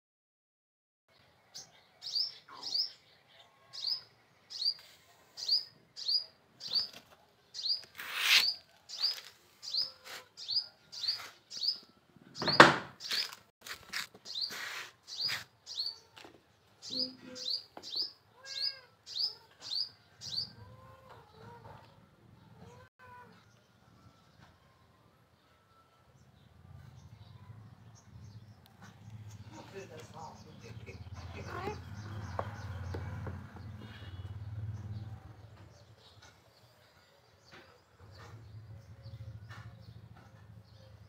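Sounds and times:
small bird chirping: 14.2 - 16.2, 16.8 - 21.6.

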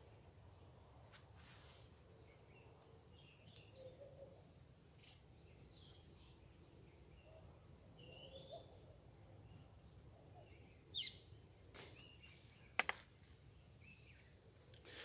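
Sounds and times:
birds chirping: 9.4 - 15.0.

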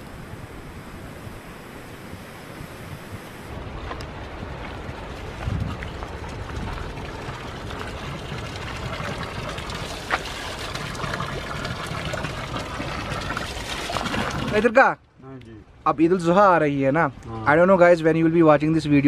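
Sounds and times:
water pouring onto stones: 4.8 - 14.8.

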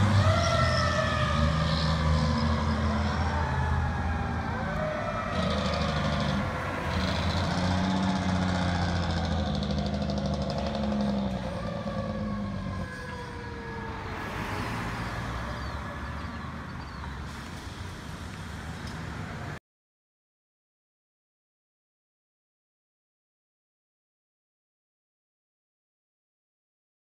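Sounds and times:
fire truck siren wailing: 0.0 - 17.3.

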